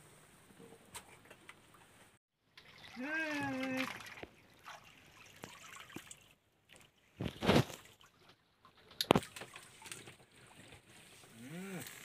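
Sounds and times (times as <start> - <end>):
water splashing: 2.5 - 12.0.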